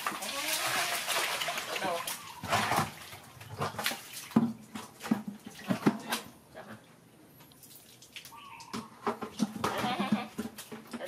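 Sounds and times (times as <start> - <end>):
water splashing: 0.0 - 6.4
plastic bucket knocking on concrete: 3.6 - 6.3, 8.7 - 11.0.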